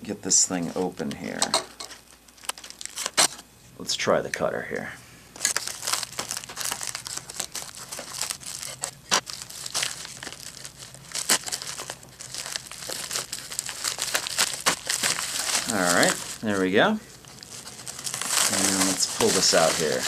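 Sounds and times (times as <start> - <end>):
plastic mailer crinkling: 2.3 - 3.4, 5.4 - 20.0.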